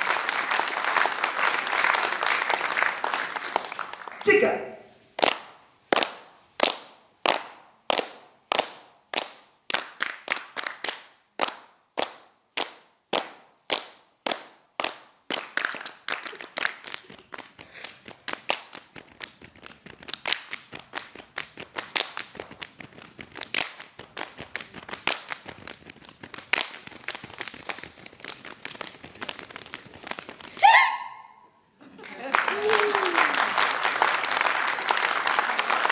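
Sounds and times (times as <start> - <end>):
hands clapping and chest striking: 5.2 - 30.6
brief hiss: 26.5 - 28.2.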